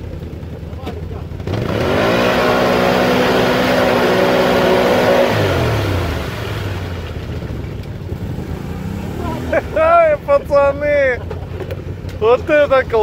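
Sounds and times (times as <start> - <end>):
atv engine revving: 0.0 - 13.0
wheels spinning in mud: 0.0 - 13.0.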